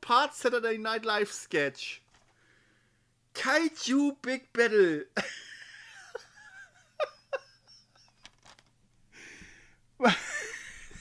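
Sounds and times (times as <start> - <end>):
man laughing breathily: 9.2 - 11.0.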